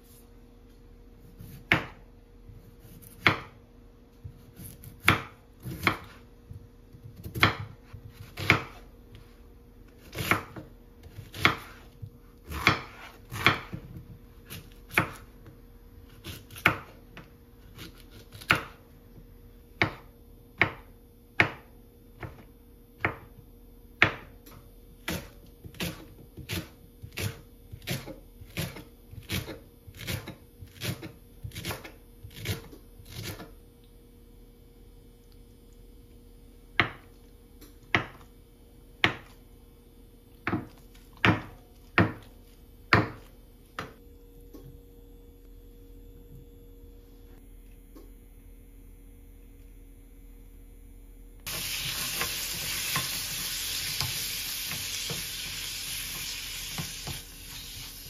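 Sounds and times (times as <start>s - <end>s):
faint steady hum: 0.0s - 58.0s
knife chopping on wooden board: 1.3s - 3.6s, 4.3s - 6.2s, 7.0s - 8.9s, 10.0s - 15.2s, 16.1s - 17.0s, 17.7s - 18.8s, 19.8s - 22.4s, 23.0s - 23.3s, 25.0s - 33.5s, 36.8s - 37.1s, 37.9s - 38.3s, 39.0s - 39.4s, 40.4s - 42.3s, 42.9s - 44.0s.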